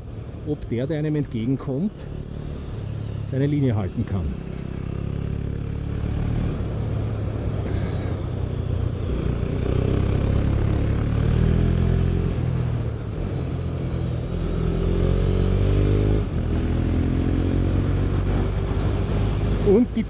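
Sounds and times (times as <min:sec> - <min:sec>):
motorcycle engine accelerating: 0:04.3 - 0:20.0.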